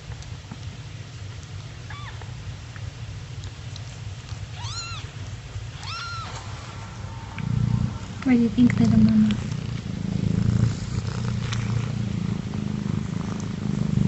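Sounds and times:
low steady rumble: 0:00.0 - 0:14.0
kitten mewing: 0:04.5 - 0:11.8.

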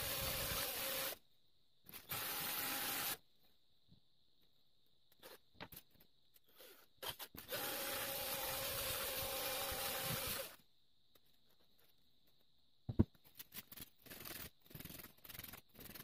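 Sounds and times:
drill motor whirring: 0:00.0 - 0:01.2, 0:01.9 - 0:03.2, 0:06.6 - 0:10.6.

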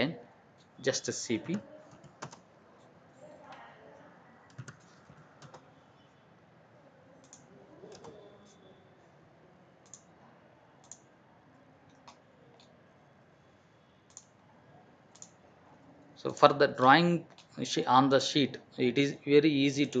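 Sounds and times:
computer mouse clicks: 0:07.2 - 0:08.6, 0:09.8 - 0:10.1, 0:10.8 - 0:11.1, 0:14.1 - 0:14.3, 0:15.1 - 0:15.4.

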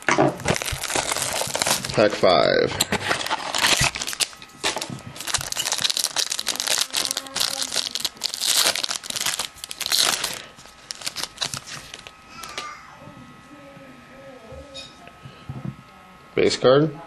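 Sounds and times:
foil wrapper tearing and crinkling: 0:00.0 - 0:12.6.

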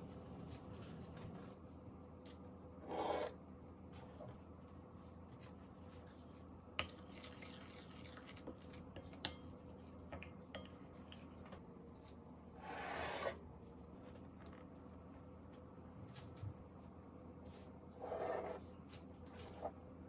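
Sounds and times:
scraping and stirring: 0:06.8 - 0:09.4.

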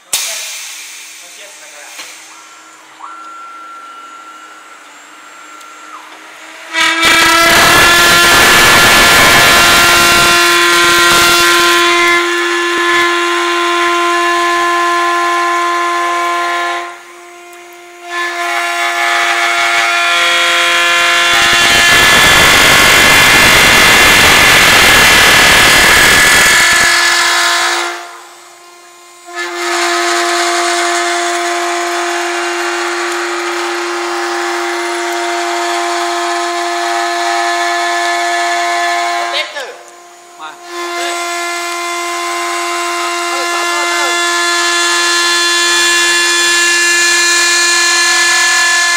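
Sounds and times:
lathe motor whine: 0:01.7 - 0:48.9
cutter shaving spinning wood: 0:40.4 - 0:48.9.

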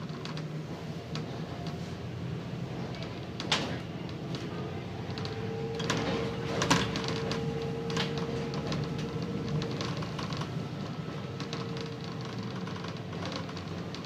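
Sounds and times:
steady engine whine: 0:01.0 - 0:13.2
bus diesel engine droning: 0:03.8 - 0:11.7.

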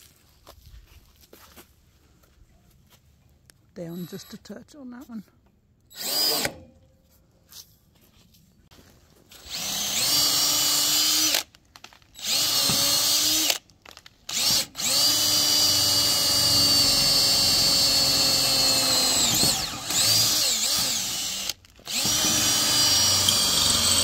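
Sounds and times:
cordless drill boring into wood and metal: 0:05.9 - 0:06.6, 0:09.3 - 0:11.5, 0:12.2 - 0:24.0.

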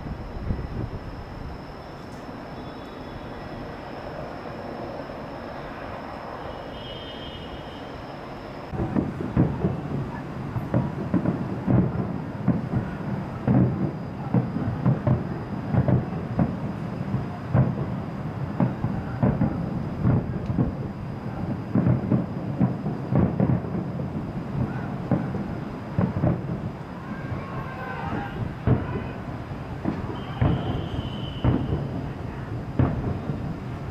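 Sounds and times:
distant fireworks booming: 0:00.0 - 0:33.9.

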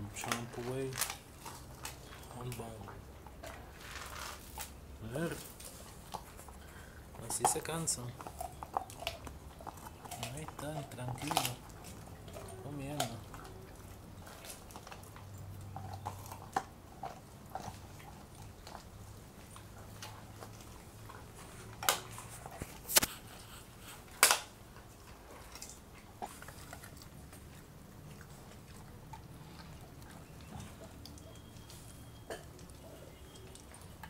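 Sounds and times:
dog chewing a bone: 0:00.0 - 0:34.0
loud bone crunches: 0:00.2 - 0:02.6, 0:03.4 - 0:13.4, 0:23.8 - 0:24.6.

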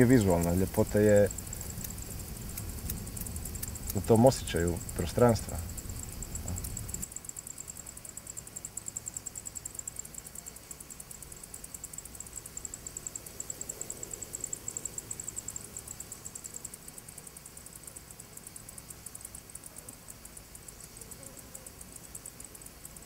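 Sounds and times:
insects chirping: 0:00.0 - 0:23.0.

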